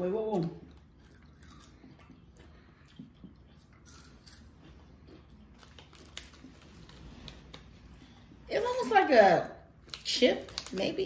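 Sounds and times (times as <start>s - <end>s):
person chewing crisp snack: 0.7s - 7.0s.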